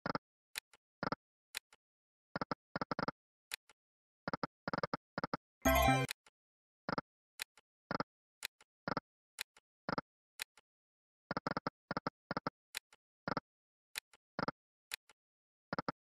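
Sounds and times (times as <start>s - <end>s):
electronic clicks and blips: 5.7s - 6.1s.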